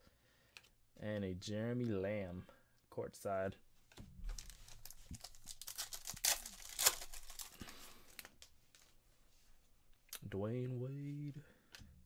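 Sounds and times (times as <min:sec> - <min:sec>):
foil wrapper tearing and crinkling: 0:04.3 - 0:08.4.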